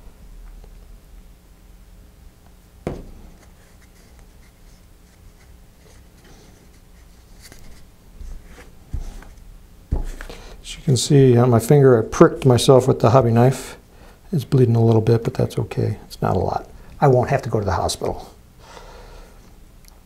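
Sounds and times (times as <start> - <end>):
glue bottle set down: 2.9 - 3.5
faint paper rustle: 3.3 - 9.4.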